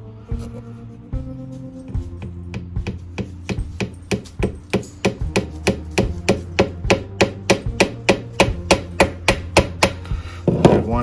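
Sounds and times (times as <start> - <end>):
hammer tapping nail: 2.2 - 10.8.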